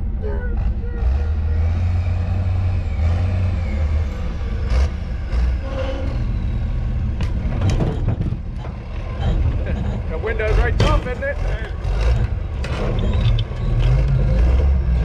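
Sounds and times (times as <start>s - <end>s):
diesel engine rumbling: 0.0s - 15.0s
metal clanks and knocks: 7.1s - 14.8s.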